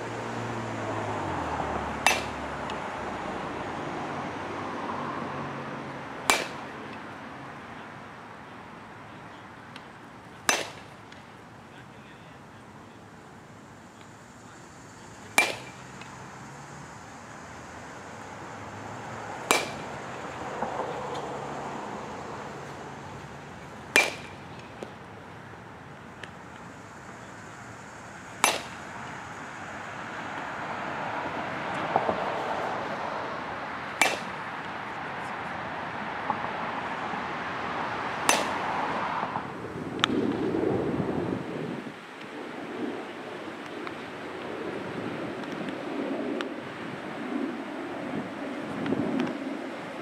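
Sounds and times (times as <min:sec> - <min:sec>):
baseball bat cracking balls: 0:02.0 - 0:02.8, 0:06.1 - 0:07.2, 0:09.6 - 0:11.5, 0:15.2 - 0:16.2, 0:19.3 - 0:25.1, 0:25.8 - 0:27.4, 0:28.3 - 0:29.2, 0:33.9 - 0:35.0, 0:38.2 - 0:38.7.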